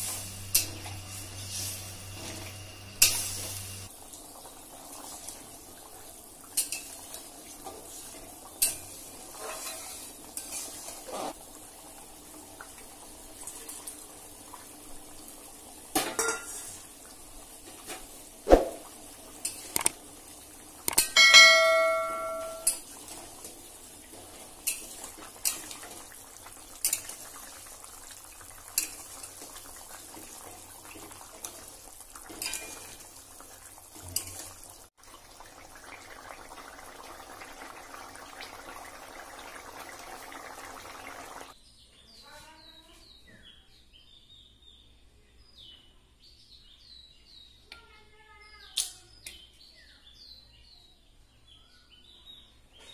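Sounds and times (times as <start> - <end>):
curry bubbling in a pot: 3.8 - 20.8, 22.8 - 41.6.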